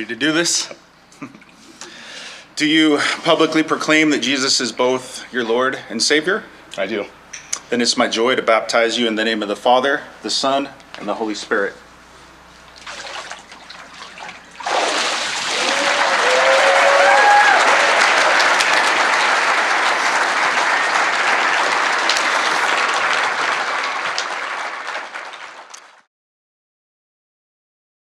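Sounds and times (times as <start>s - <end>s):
water sloshing and splashing: 12.7s - 15.8s
crowd applauding: 14.7s - 26.1s
whoops and cheers: 15.5s - 18.7s.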